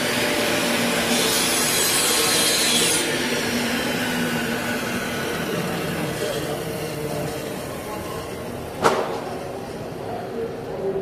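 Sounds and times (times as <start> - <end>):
saw cutting wood hiss: 0.0 - 7.8
table saw running: 0.0 - 10.0.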